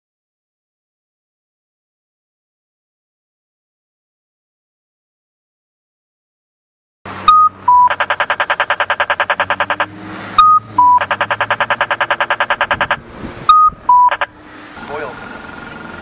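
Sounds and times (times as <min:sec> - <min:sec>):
short high beeps: 0:07.3 - 0:14.3
rapid ticking tones: 0:07.3 - 0:14.4.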